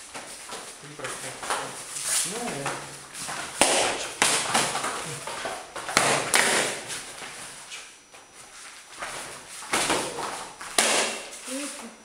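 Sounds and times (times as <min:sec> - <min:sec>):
sticks striking with sharp knocks: 0:03.6 - 0:04.5, 0:10.8 - 0:11.3.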